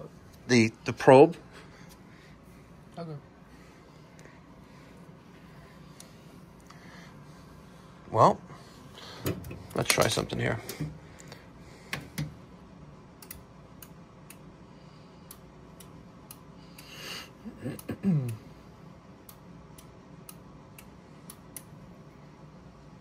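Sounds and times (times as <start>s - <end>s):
faint sharp ticking clicks: 13.2s - 14.5s, 15.2s - 16.9s, 19.2s - 21.7s.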